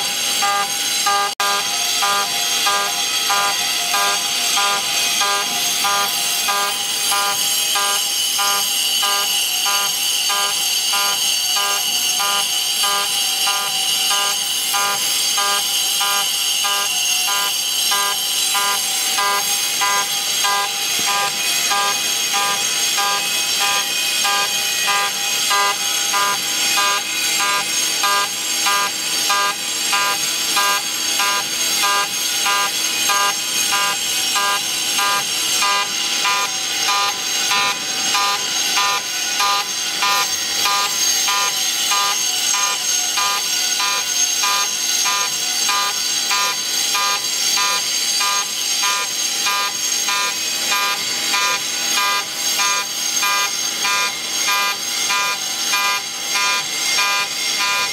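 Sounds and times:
cnc spindle whining: 0:00.0 - 0:57.9
end mill cutting metal: 0:00.0 - 0:57.9.

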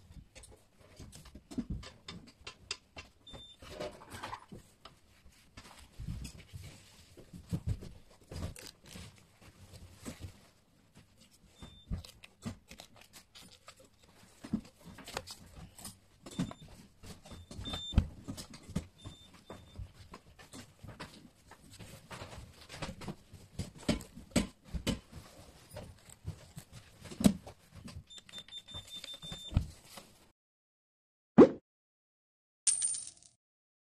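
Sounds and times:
keypad beeps: 0:17.3 - 0:18.0, 0:28.1 - 0:29.6.

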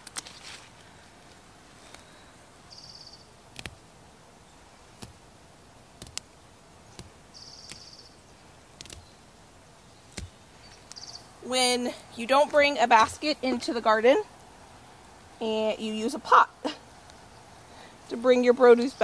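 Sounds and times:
snaps of vegetables picked: 0:00.0 - 0:02.1, 0:03.5 - 0:03.9, 0:04.9 - 0:05.2, 0:06.0 - 0:08.0, 0:08.8 - 0:09.1, 0:10.1 - 0:11.0.

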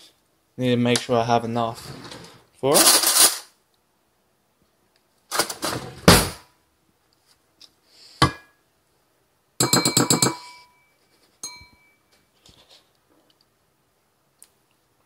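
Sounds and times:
spoon clinking against ceramic bowl: 0:09.6 - 0:12.0.

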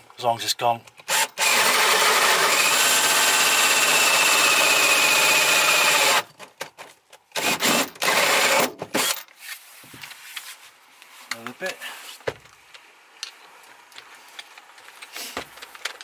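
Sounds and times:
power drill cutting through plywood: 0:01.1 - 0:06.3, 0:07.4 - 0:09.2.

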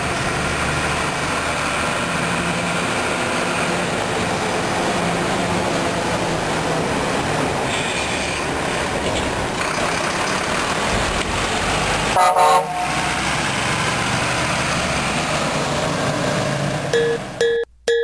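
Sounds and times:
diesel truck driving past: 0:00.0 - 0:17.4
truck horn toot: 0:12.2 - 0:13.1.

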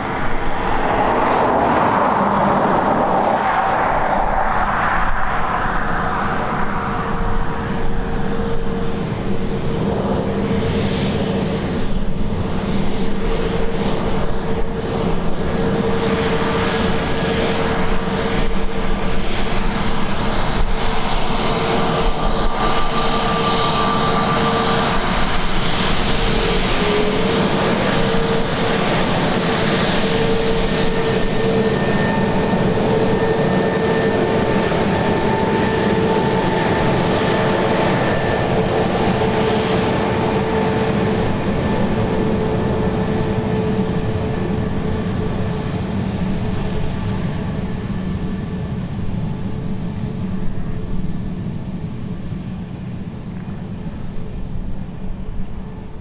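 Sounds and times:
jet engines whining at taxi: 0:00.0 - 0:56.0.

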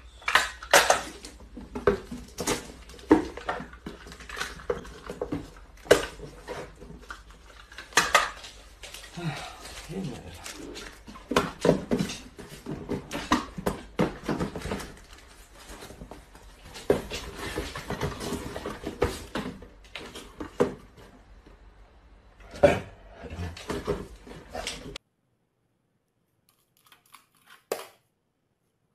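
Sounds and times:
cardboard boxes knocking and scraping: 0:01.4 - 0:07.4, 0:11.0 - 0:21.2.

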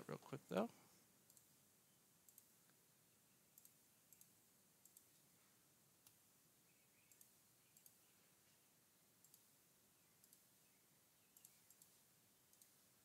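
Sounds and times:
faint mouse clicks: 0:01.2 - 0:01.5, 0:02.2 - 0:02.8, 0:03.5 - 0:05.2, 0:07.0 - 0:08.1, 0:09.2 - 0:09.5, 0:10.2 - 0:10.5, 0:11.2 - 0:12.8.

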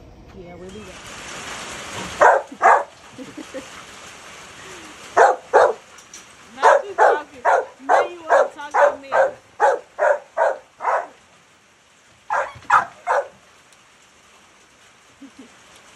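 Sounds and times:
dog barking: 0:02.2 - 0:02.9, 0:05.2 - 0:05.8, 0:06.6 - 0:11.2, 0:12.3 - 0:13.4.

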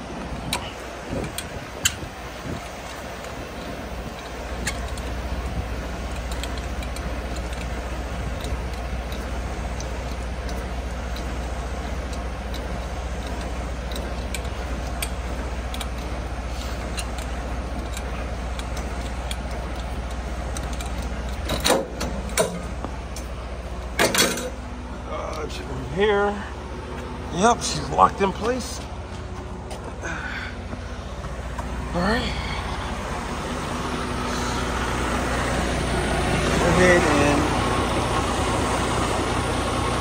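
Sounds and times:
diesel engine rumbling: 0:00.0 - 0:40.0
light metallic ticks: 0:00.4 - 0:16.1, 0:16.8 - 0:24.5.

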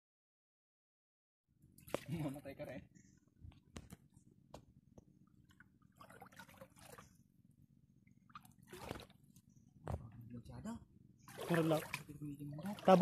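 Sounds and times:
water sloshing and dripping: 0:01.7 - 0:02.4, 0:04.9 - 0:10.0, 0:11.2 - 0:13.0.

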